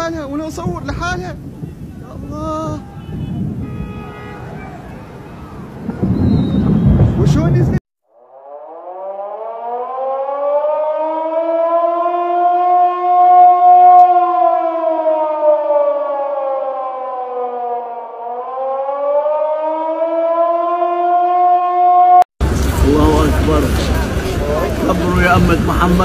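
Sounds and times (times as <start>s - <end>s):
siren wailing: 8.2s - 26.0s.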